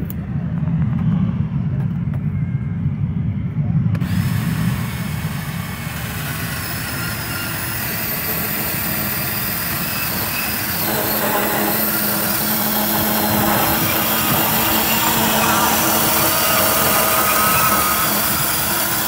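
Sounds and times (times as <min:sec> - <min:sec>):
band saw cutting steel tube: 0:04.0 - 0:19.0.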